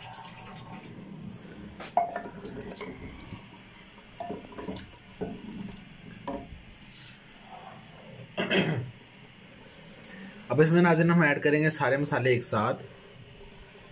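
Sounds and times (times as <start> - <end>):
liquid sloshing: 0.0 - 6.9.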